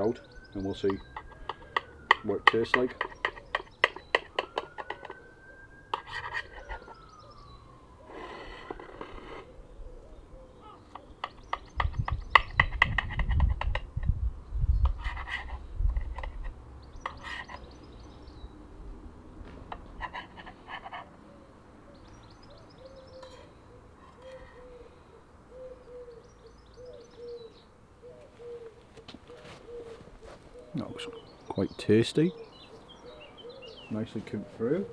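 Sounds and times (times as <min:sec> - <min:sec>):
small birds chirping: 0:00.0 - 0:34.9
pigeon cooing: 0:00.1 - 0:02.0, 0:04.7 - 0:07.4, 0:08.0 - 0:13.3, 0:19.8 - 0:31.4, 0:32.2 - 0:34.9.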